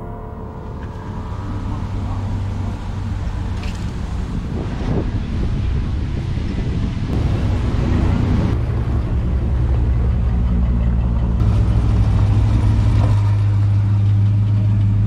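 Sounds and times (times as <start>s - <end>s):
car engines rumbling: 0.0s - 15.0s.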